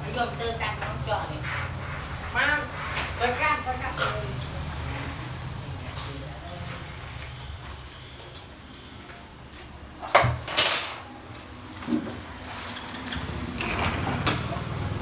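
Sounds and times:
sliding door rattling scrape: 11.9s - 15.0s.

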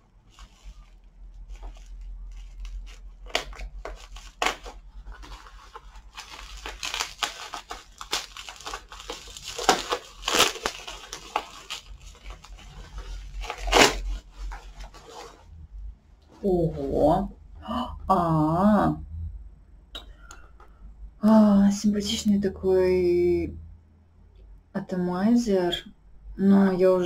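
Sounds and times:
plastic wrapping crinkling and ripping: 0.2s - 15.5s.

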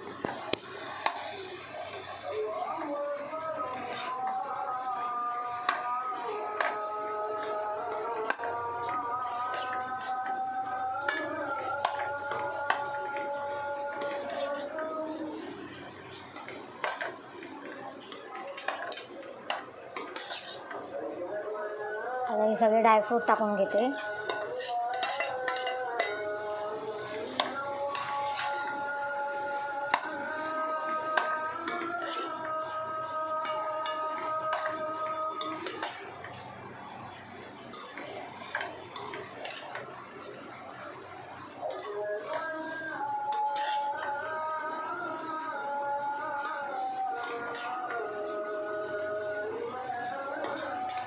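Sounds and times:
metal spatula scraping a pan: 1.0s - 2.2s, 5.0s - 20.9s, 23.9s - 36.4s, 37.2s - 40.4s, 41.3s - 44.9s, 46.3s - 51.0s.

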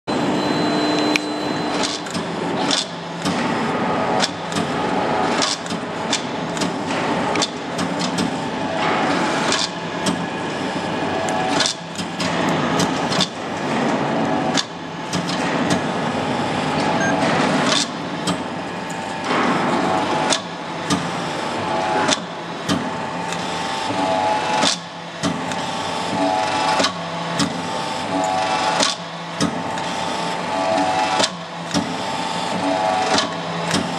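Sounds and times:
hydraulic press humming: 0.1s - 33.9s
sharp clicks and knocks: 4.2s - 10.3s.

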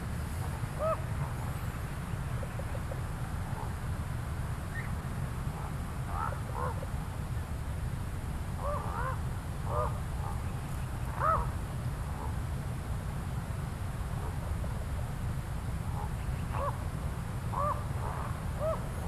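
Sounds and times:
ravens croaking: 11.1s - 11.6s, 17.5s - 19.0s.

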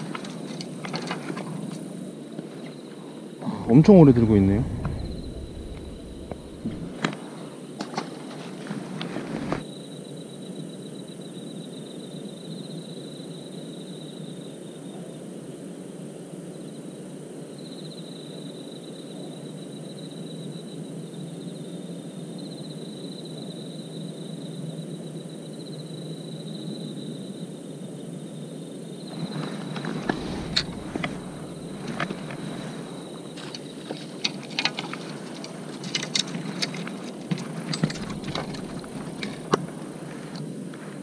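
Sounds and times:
steady low hiss: 0.0s - 10.7s, 27.2s - 41.0s
crickets chirping: 0.0s - 41.0s
handling rustle: 4.0s - 9.7s, 29.1s - 41.0s.

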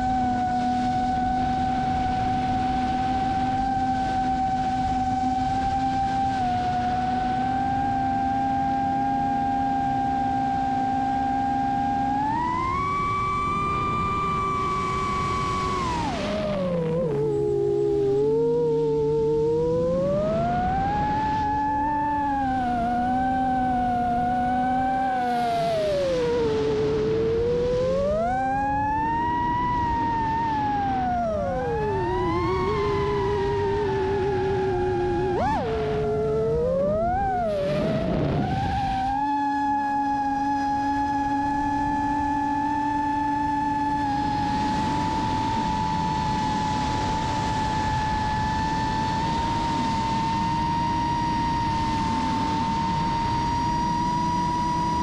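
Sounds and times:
quadcopter motors whining: 0.0s - 55.0s
rushing wind noise: 12.0s - 55.0s.

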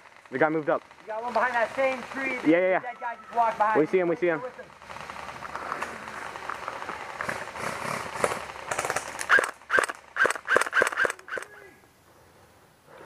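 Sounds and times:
rustling hiss: 0.9s - 13.0s
airsoft rifle shots: 3.3s - 11.6s.

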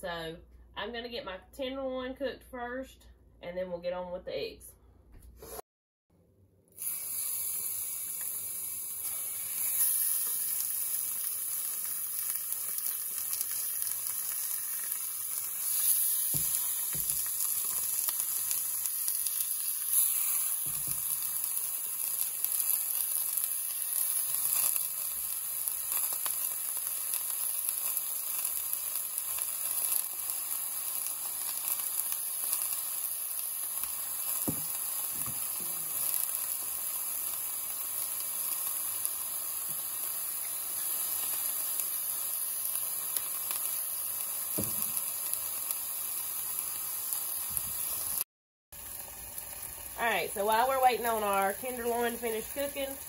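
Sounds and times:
meat sizzling in a skillet: 6.8s - 53.0s
light knocks in pan: 44.6s - 45.0s.

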